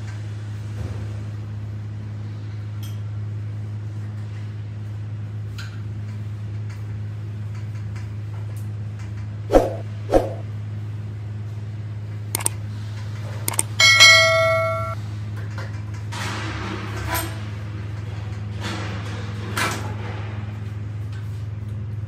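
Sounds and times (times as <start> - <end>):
metallic clang ringing: 13.7 - 15.0.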